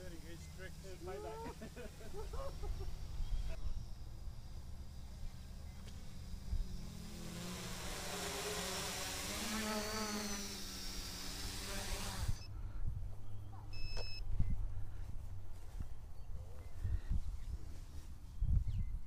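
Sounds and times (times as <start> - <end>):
drone propellers buzzing: 0.0 - 12.5
short electronic beep: 13.7 - 14.2
wind rumble on microphone: 14.2 - 19.0.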